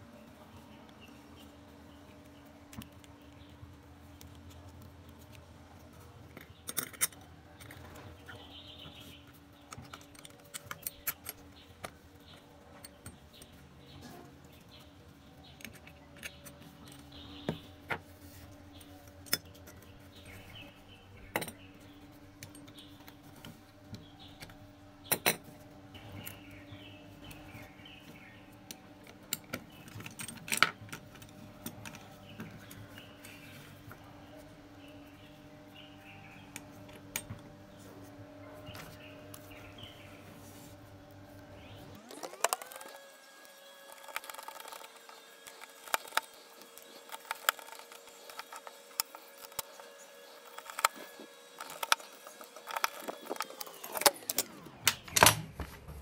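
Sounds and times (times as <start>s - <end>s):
small metal parts clicking: 6.3s - 7.9s, 9.7s - 13.6s, 42.0s - 55.3s.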